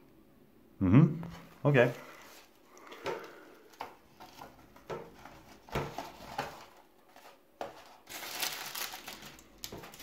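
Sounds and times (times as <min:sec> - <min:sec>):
tea box rustles and taps: 0:02.3 - 0:08.3, 0:09.2 - 0:10.0.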